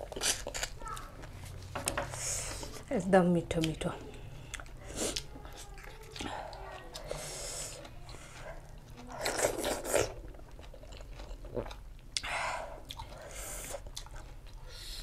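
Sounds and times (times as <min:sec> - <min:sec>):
person chewing and biting: 0:00.0 - 0:01.2, 0:04.5 - 0:14.6.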